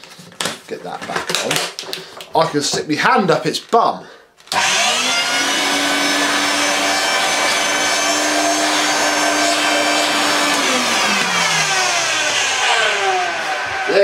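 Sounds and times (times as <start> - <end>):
upright vacuum cleaner running: 4.5 - 14.0.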